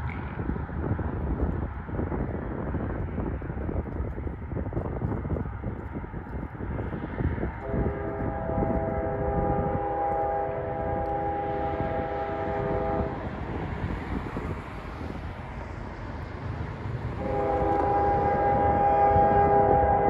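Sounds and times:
train air horn blasts: 0:07.6 - 0:13.2, 0:17.2 - 0:20.0.

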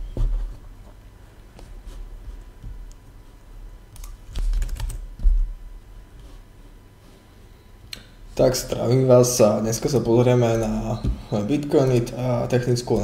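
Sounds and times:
typing on computer keyboard: 0:04.0 - 0:05.0.

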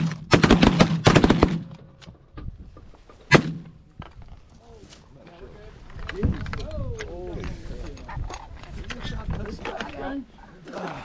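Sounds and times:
shotgun blasts: 0:00.0 - 0:01.8, 0:03.3 - 0:03.7.

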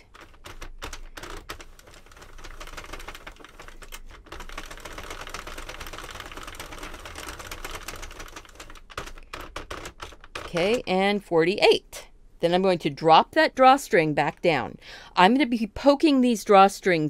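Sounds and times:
knitting machine needles clattering: 0:00.0 - 0:11.1.

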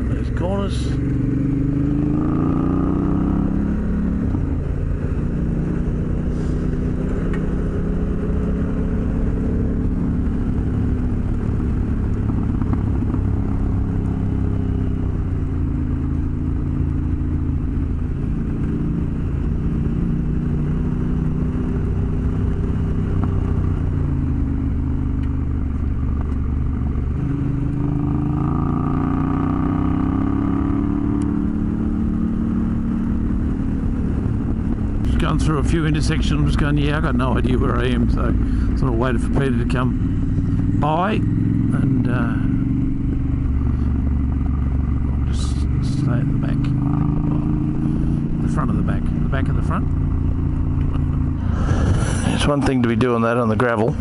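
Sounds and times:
low wind rush: 0:00.0 - 0:54.0
motorcycle engine revving: 0:00.0 - 0:54.0.

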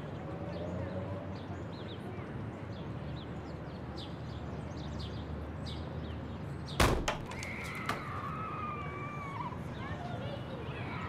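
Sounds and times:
loud whack: 0:06.8 - 0:07.4.

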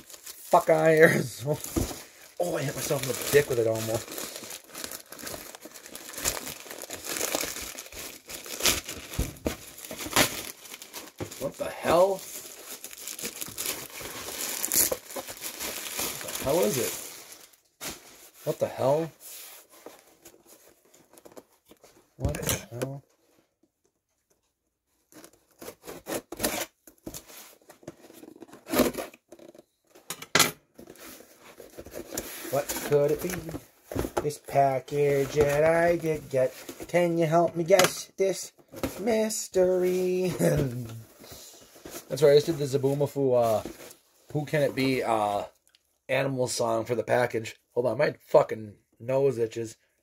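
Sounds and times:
plastic mailer bag crinkling: 0:00.0 - 0:17.6.

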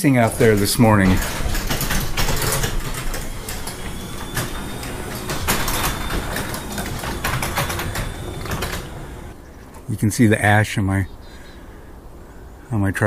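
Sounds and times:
door rollers clattering: 0:00.0 - 0:09.4
garage door motor whining: 0:00.0 - 0:09.4.

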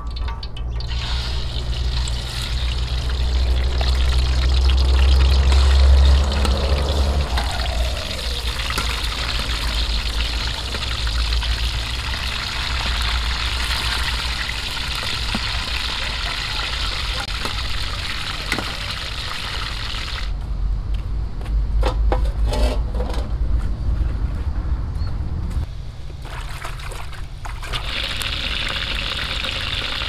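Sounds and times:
water pouring into a basin: 0:00.8 - 0:20.3, 0:26.3 - 0:30.0.

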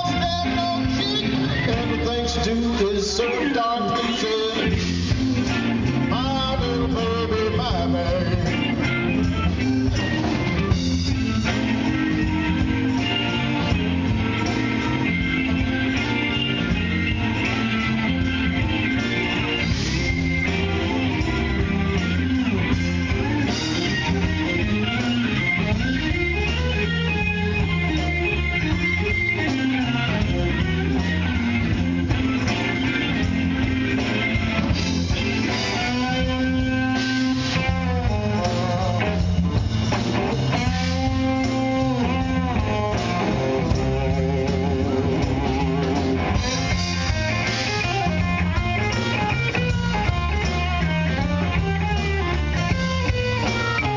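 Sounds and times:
bass guitar: 0:00.0 - 0:53.9
drum kit: 0:00.0 - 0:53.9
electric guitar: 0:00.0 - 0:53.9.

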